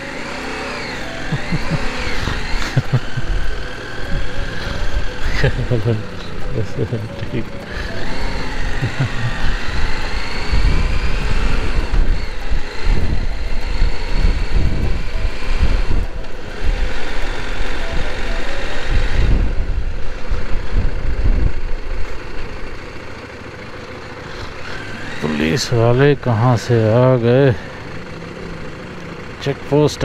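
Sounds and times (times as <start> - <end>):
motorcycle engine running: 0.0 - 30.0
wind buffeting microphone: 9.3 - 22.0.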